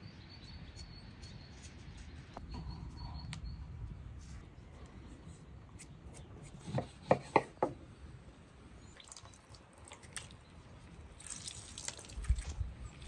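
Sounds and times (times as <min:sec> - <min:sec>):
juice dripping into liquid: 0:08.9 - 0:13.0.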